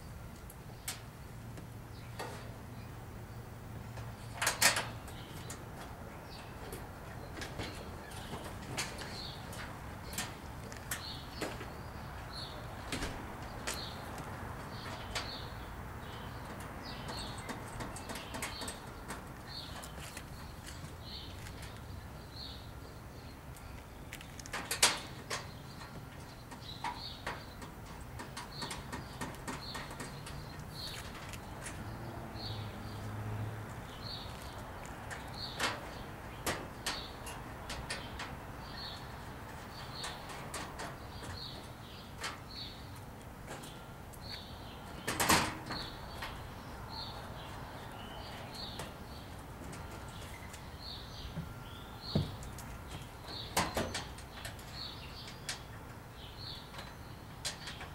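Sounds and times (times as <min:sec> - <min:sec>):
metal panels knocking and clacking: 0:04.3 - 0:05.9, 0:06.7 - 0:11.7, 0:16.4 - 0:19.9, 0:24.5 - 0:31.8, 0:34.9 - 0:42.5, 0:44.9 - 0:46.4, 0:52.1 - 0:55.7.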